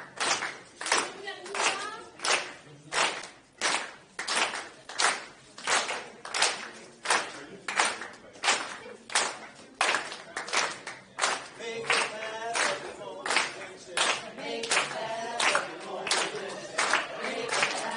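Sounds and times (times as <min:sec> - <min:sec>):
hand claps keeping a beat: 0:00.0 - 0:17.9
voices singing: 0:11.6 - 0:17.9.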